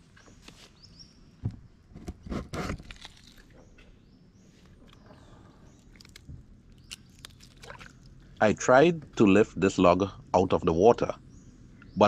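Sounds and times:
birds chirping: 3.4s - 12.0s
water sloshing: 4.7s - 8.6s.

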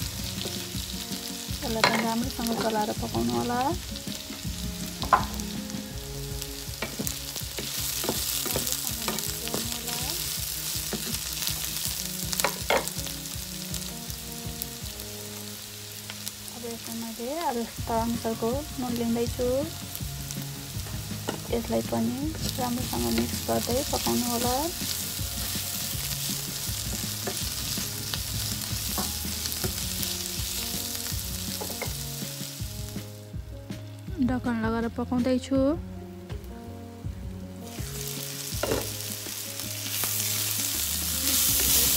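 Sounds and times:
vegetables sizzling in hot oil: 0.0s - 41.9s
spatula knocking and scraping pan: 1.7s - 3.0s, 6.8s - 10.0s, 28.7s - 29.9s, 38.6s - 39.0s.

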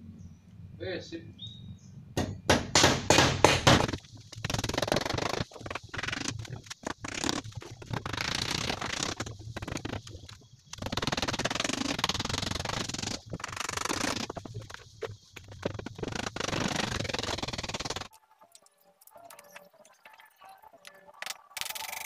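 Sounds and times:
rapid sharp knocking: 2.2s - 8.0s.

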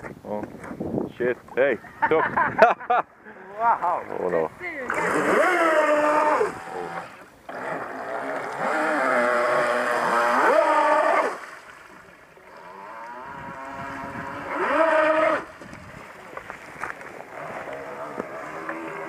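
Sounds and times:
electric boat motor whining: 4.8s - 11.4s, 12.5s - 15.6s, 17.2s - 19.0s.

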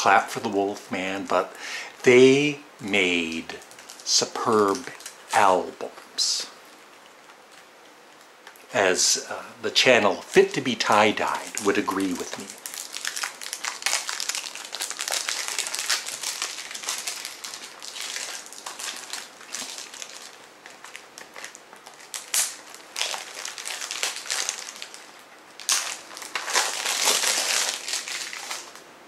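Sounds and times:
plastic shrink-wrap crackling: 3.0s - 5.8s, 10.3s - 28.8s.

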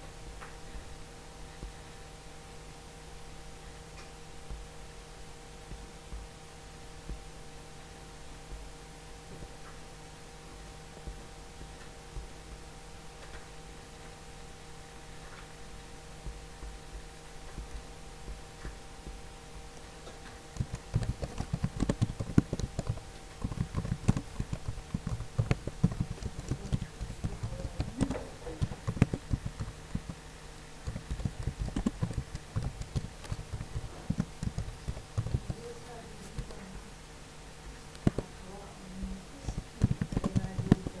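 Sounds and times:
steady hum: 0.0s - 41.0s
typing on computer keyboard: 20.5s - 30.2s, 30.8s - 35.6s, 39.5s - 41.0s.

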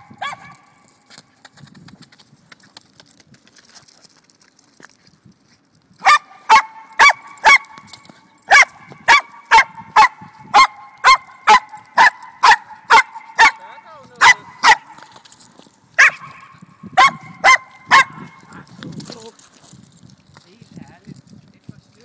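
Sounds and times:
dog barking: 0.0s - 0.6s, 6.0s - 7.8s, 8.5s - 15.0s, 16.0s - 18.6s.

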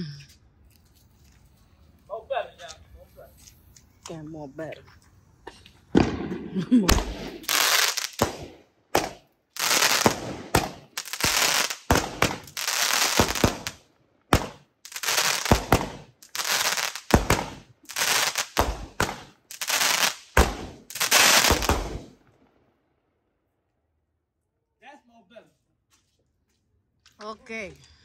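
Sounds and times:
fireworks bangs with crackling: 5.9s - 22.2s.

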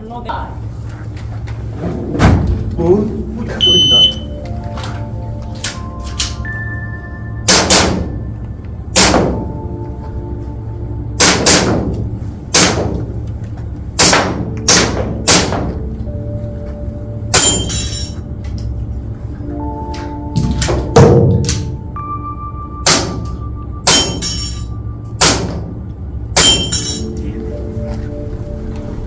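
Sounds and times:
background music: 0.0s - 29.0s
airsoft pistol shots: 9.0s - 9.4s, 11.2s - 11.9s, 12.5s - 13.0s, 14.0s - 15.7s.

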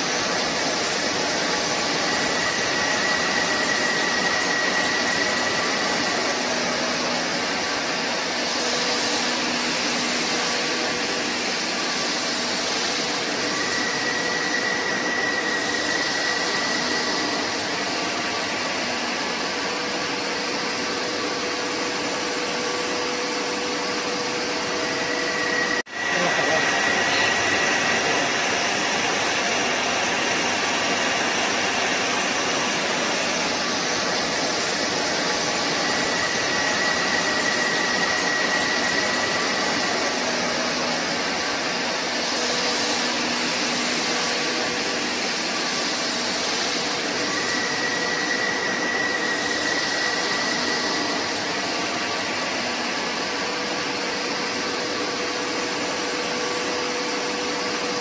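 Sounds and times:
faint high whine: 0.0s - 58.0s
lathe whirring hiss: 0.0s - 58.0s.

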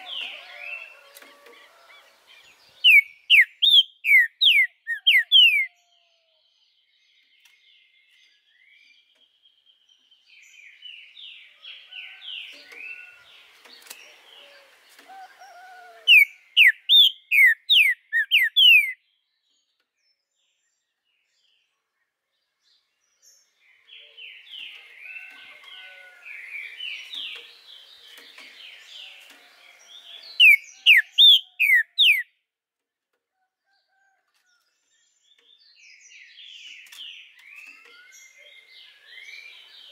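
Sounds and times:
bird singing twittering whistles: 2.8s - 5.7s, 15.4s - 19.0s, 30.3s - 32.3s.

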